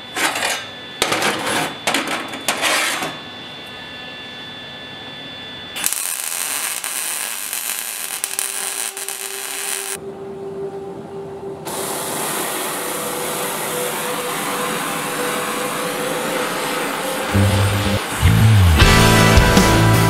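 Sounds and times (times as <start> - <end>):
welder crackling: 5.8 - 10.0
steady hiss: 11.7 - 18.5.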